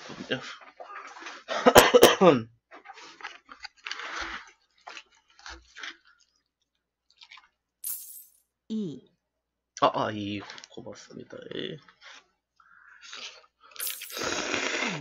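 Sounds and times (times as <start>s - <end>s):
man chewing food: 2.7s - 7.8s.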